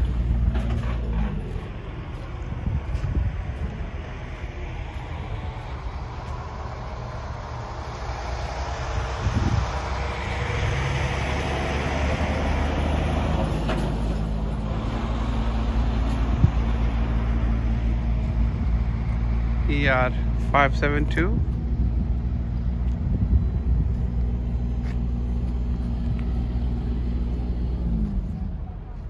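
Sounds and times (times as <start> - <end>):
engine humming: 0.0 - 29.0.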